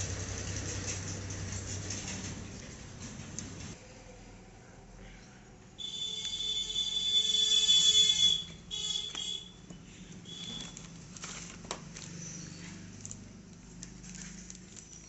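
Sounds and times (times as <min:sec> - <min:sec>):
shrill steady tone: 0:05.8 - 0:09.6.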